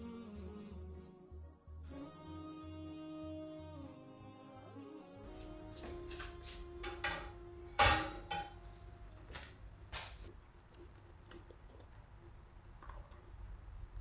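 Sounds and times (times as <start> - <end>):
wire rack clattering: 6.8 - 8.6
wire rack knocking on stone: 6.8 - 8.6.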